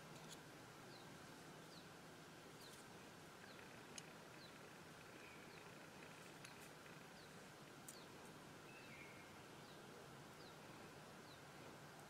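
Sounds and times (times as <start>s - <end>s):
soft ticks: 2.6s - 7.0s.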